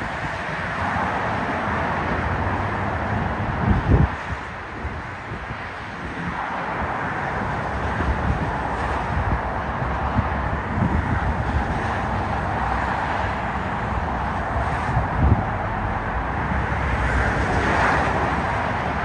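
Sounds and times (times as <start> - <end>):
road traffic: 0.0 - 19.0
wind buffeting microphone: 0.0 - 19.0
distant electric train rumble: 7.4 - 19.0.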